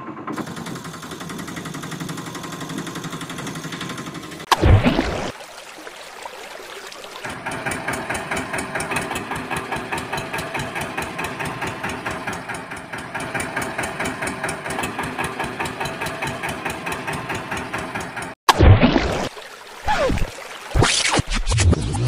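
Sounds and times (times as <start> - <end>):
engine idling chugging: 0.0 - 4.5, 7.2 - 18.4.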